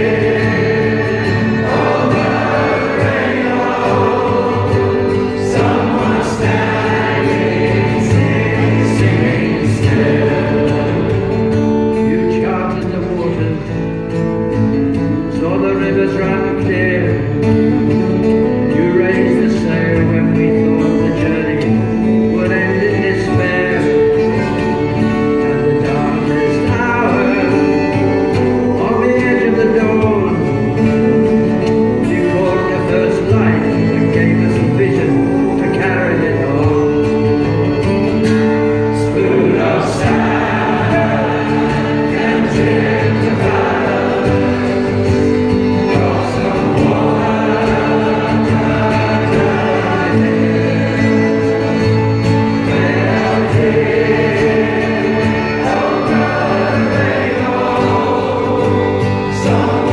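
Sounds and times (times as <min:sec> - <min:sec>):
male voice choir singing: 0:00.0 - 0:13.5, 0:18.8 - 0:59.9
strummed acoustic guitars: 0:00.0 - 0:59.9
solo singer: 0:15.0 - 0:59.9.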